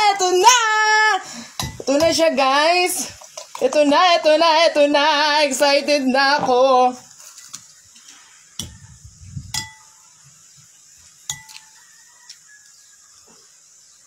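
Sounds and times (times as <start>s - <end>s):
metal spoon clinking on glass bowl: 9.5s - 10.0s, 11.3s - 11.7s.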